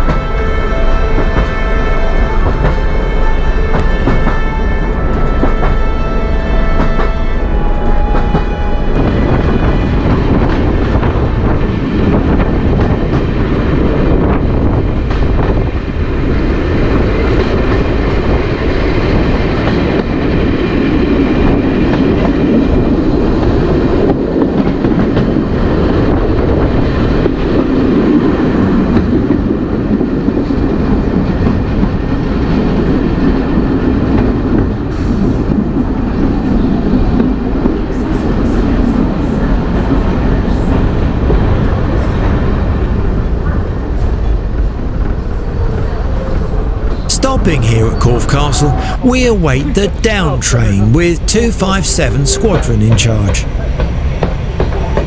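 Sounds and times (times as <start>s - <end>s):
train wheels on rails: 6.6s - 47.1s.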